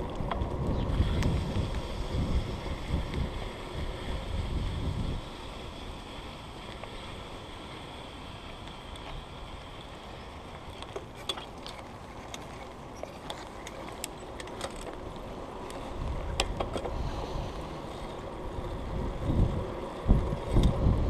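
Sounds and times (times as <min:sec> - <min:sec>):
wind on microphone: 0:00.0 - 0:05.9, 0:15.8 - 0:21.0
bicycle clicks and rattles: 0:00.0 - 0:21.0.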